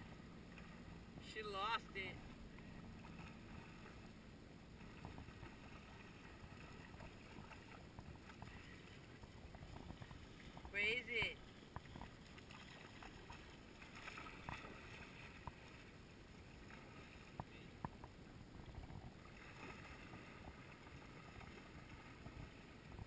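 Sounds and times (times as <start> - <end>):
ripples lapping at shoreline: 0.0 - 23.0.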